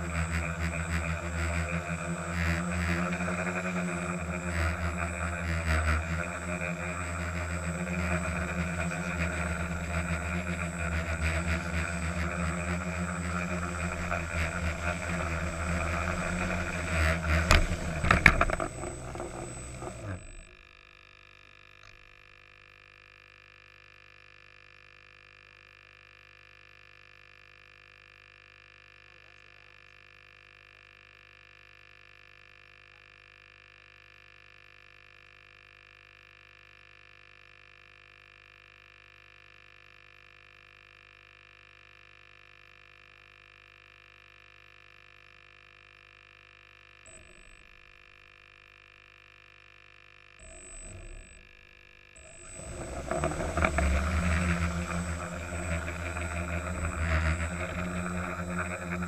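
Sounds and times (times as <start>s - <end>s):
drone landing knock: 0.0s - 20.5s
drone motors and propellers: 0.0s - 20.7s, 47.1s - 48.3s, 50.4s - 59.0s
faint steady hum: 0.0s - 20.7s, 50.4s - 59.0s.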